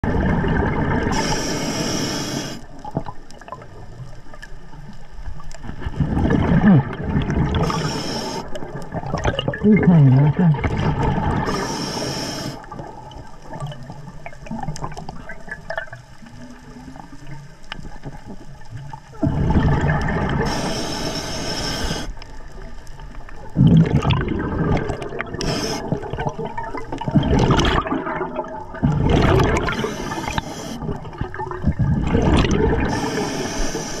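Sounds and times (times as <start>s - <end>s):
diver exhaling bubbles underwater: 0.0s - 4.0s, 5.7s - 17.1s, 19.1s - 22.2s, 23.4s - 34.0s
underwater water noise: 0.0s - 34.0s.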